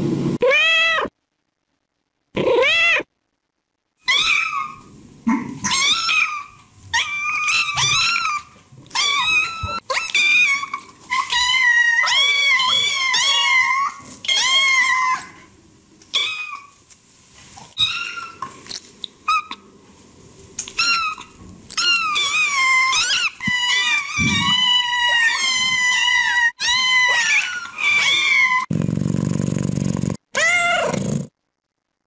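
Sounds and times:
cat meowing: 20.8 - 28.7, 30.3 - 31.0.

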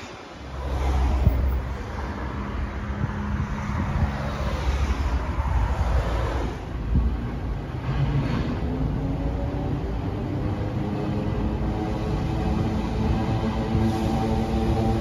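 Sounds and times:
cars passing: 0.0 - 15.0
wind rumble on microphone: 0.5 - 15.0.

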